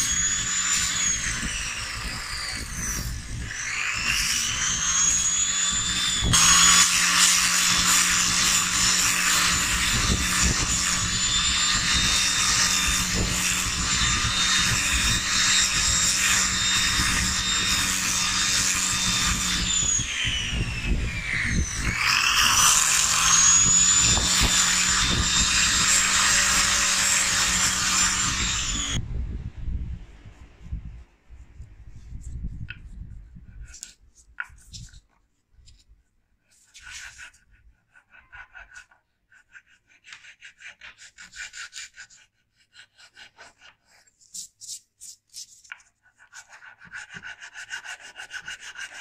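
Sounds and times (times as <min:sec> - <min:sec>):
power sander whining: 0:00.0 - 0:29.0
abrasive rasping on wood: 0:36.5 - 0:49.0.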